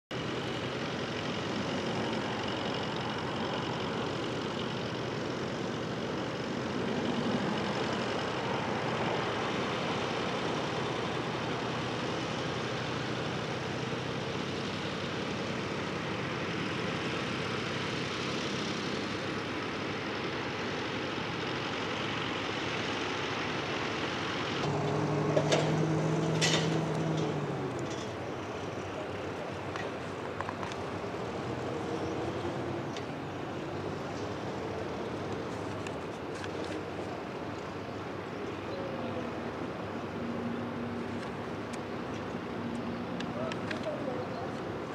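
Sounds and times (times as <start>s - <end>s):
other tractor engines: 0.1s - 44.9s
tractor engine under load: 0.1s - 44.9s
louder engine note with knocks: 24.7s - 28.2s.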